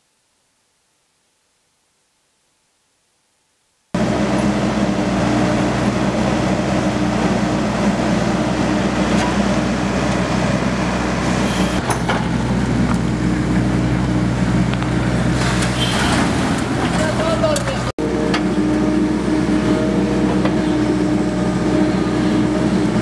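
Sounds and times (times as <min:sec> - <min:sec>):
excavator diesel engine running: 0:04.0 - 0:23.0
digging scrapes and clanks: 0:14.8 - 0:18.5.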